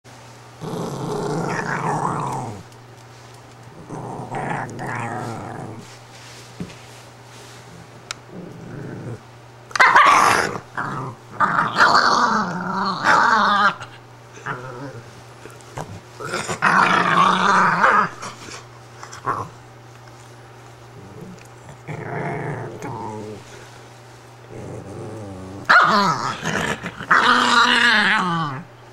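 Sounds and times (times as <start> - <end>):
dog growling: 0.6 - 2.7, 3.7 - 6.0, 7.7 - 9.2, 9.8 - 19.6, 20.9 - 23.7, 24.4 - 28.7.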